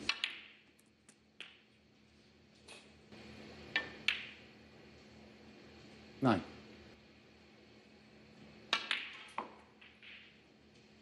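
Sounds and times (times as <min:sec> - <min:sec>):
snooker balls clicking: 0:00.0 - 0:01.8, 0:03.6 - 0:04.5, 0:08.6 - 0:11.0
quiet arena background: 0:00.0 - 0:11.0.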